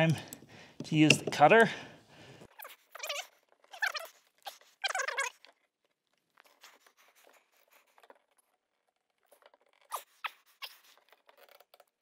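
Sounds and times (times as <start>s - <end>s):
pipe cutter scraping plastic pipe: 0.0s - 1.7s.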